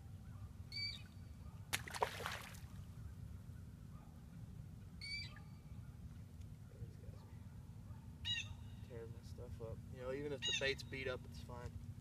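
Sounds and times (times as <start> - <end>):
fish splashing into water: 1.7 - 2.7.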